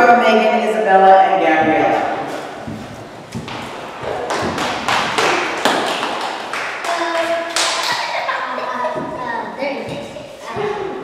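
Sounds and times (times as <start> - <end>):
children running on tiled floor: 2.6 - 10.9.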